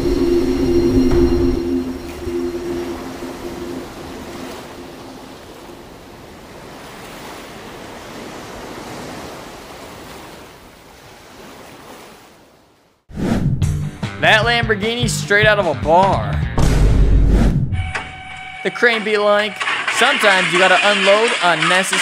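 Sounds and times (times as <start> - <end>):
low droning tone: 0.0 - 6.2
wind rushing: 0.0 - 6.8
rough sea waves: 0.0 - 13.0, 18.3 - 22.0.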